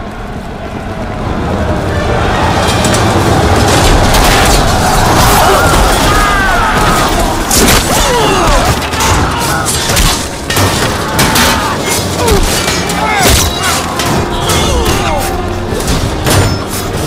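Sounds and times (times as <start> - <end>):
men shouting: 2.0 - 16.1.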